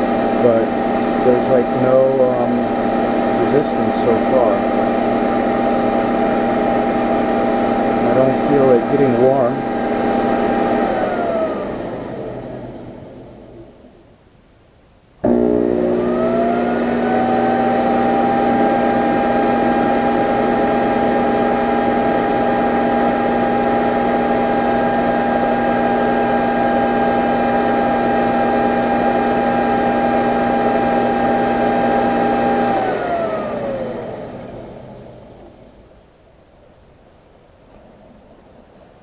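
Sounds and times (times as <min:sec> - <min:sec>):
lathe motor whine: 0:00.0 - 0:13.9, 0:15.2 - 0:35.9.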